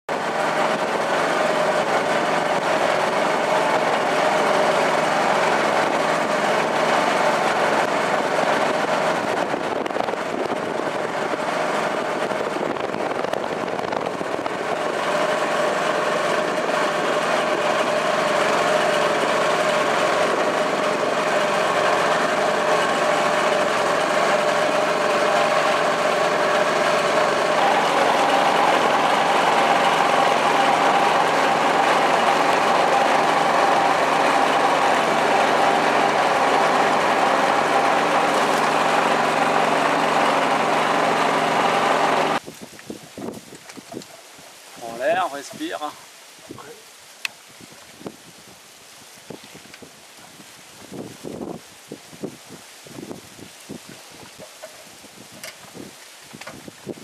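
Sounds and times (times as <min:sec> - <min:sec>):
boat engine running: 0:00.1 - 0:42.4.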